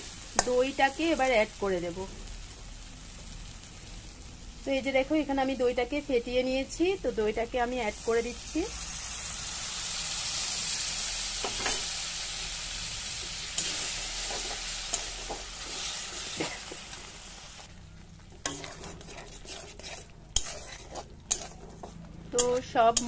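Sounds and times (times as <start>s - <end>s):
yogurt sizzling in hot oil: 0.0s - 23.0s
spatula clicking and scraping pan: 13.3s - 16.9s, 18.2s - 23.0s.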